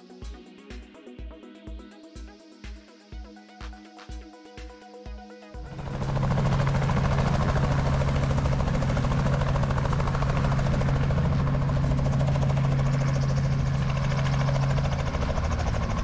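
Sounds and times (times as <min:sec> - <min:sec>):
helicopter rotor beating: 0:00.0 - 0:16.0
low engine tone: 0:05.7 - 0:16.0.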